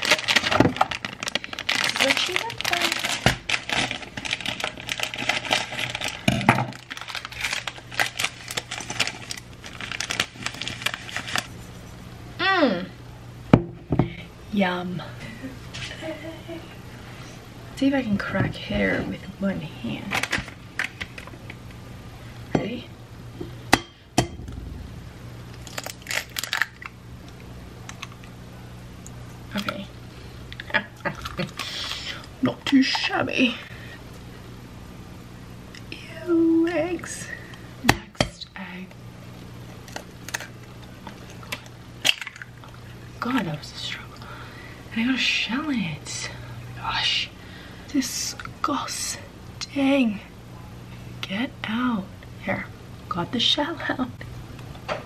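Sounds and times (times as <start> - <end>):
eggshell crackling: 0.0 - 11.6, 24.4 - 28.4, 39.3 - 43.6
plastic bag crinkling: 0.0 - 11.6, 25.4 - 27.0
steady low hum: 0.0 - 55.0.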